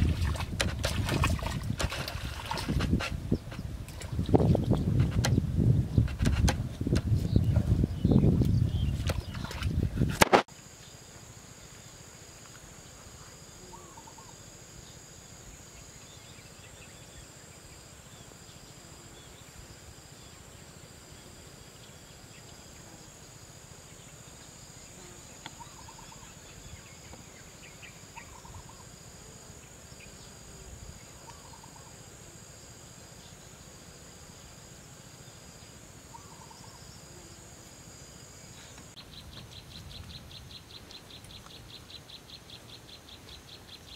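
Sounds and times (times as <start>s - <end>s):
low wind rumble: 0.0s - 10.2s
short faint insect calls: 0.0s - 43.9s
insect pulsing: 7.7s - 43.9s
fast insect trill: 10.5s - 43.9s.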